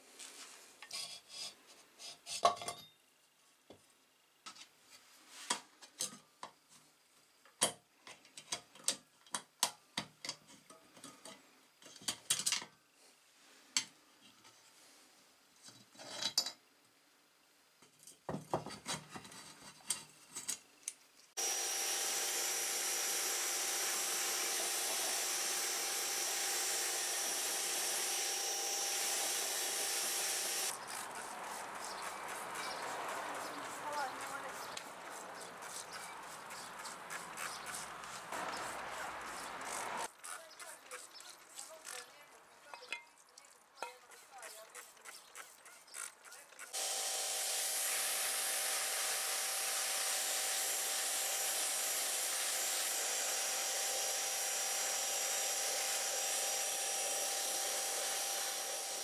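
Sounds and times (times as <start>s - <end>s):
pressure washer jet hissing: 21.4s - 40.1s.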